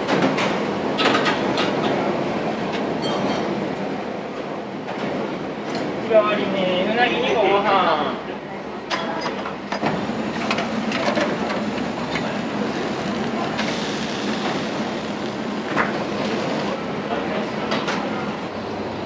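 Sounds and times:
loud hiss: 12.8 - 16.8.

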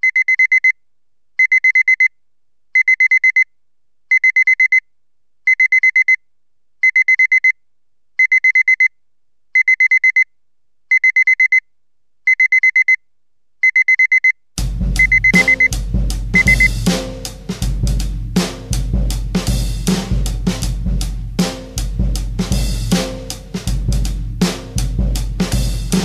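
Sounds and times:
digital alarm clock beeping: 0.0 - 0.8, 1.4 - 2.1, 2.8 - 3.5, 4.1 - 4.8, 5.5 - 6.2, 6.8 - 7.6, 8.2 - 8.9, 9.6 - 10.3, 10.9 - 11.6, 12.3 - 13.0, 13.6 - 14.4, 15.0 - 15.8, 16.4 - 16.8.

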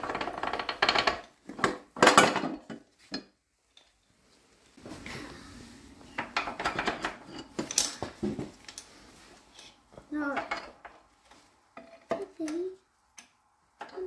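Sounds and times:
metal rods clinking: 6.2 - 8.9.

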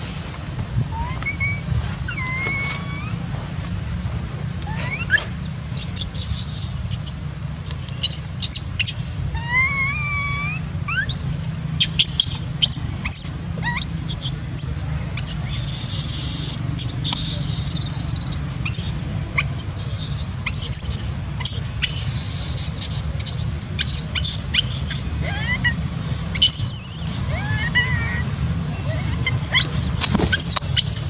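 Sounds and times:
baby monkey squealing: 1.0 - 3.2, 4.6 - 31.0
steady low hum: 2.8 - 27.4.

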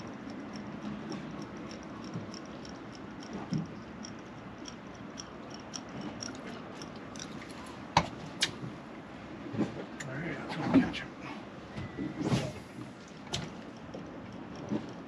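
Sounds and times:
fishing reel clicking: 0.0 - 7.8.

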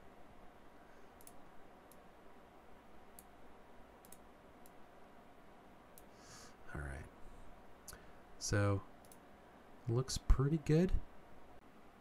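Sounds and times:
computer mouse clicks: 1.2 - 2.1, 3.1 - 3.4, 4.0 - 4.8, 5.9 - 6.1, 9.0 - 9.3.

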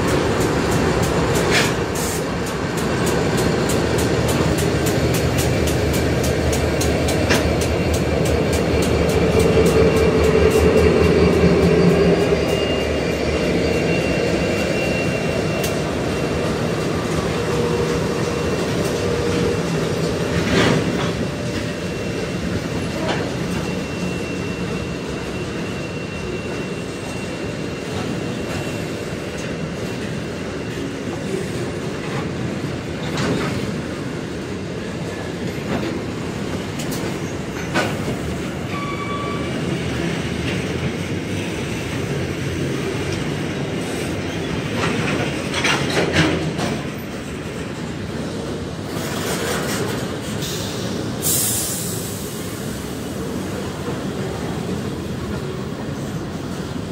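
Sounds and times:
wheels clacking over rail joints: 0.0 - 12.6
wheel squeals: 8.8 - 19.6, 21.3 - 29.0.

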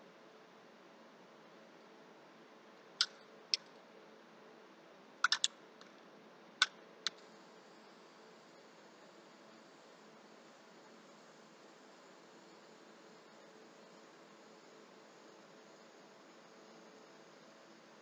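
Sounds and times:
faint steady hiss: 0.0 - 18.0
sharp light clicks: 3.0 - 3.8, 5.2 - 6.0.

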